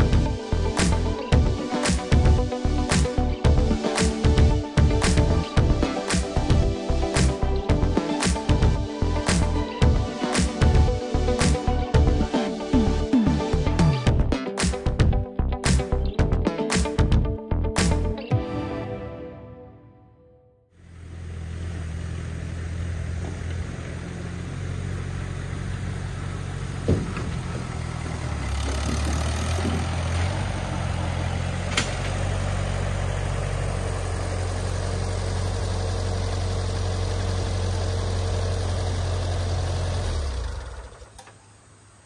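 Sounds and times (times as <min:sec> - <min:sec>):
tractor engine running: 0:20.8 - 0:42.0.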